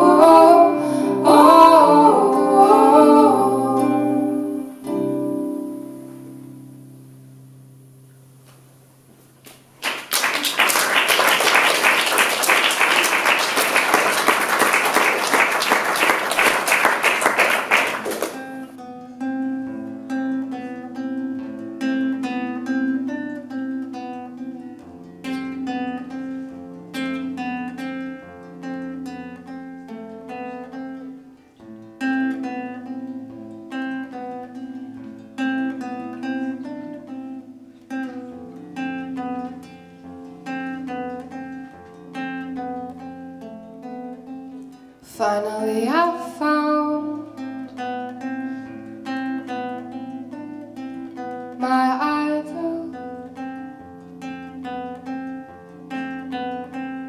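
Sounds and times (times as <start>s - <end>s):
fingerpicked classical guitar: 0.0s - 9.7s, 12.2s - 57.0s
audience applauding: 9.8s - 18.7s.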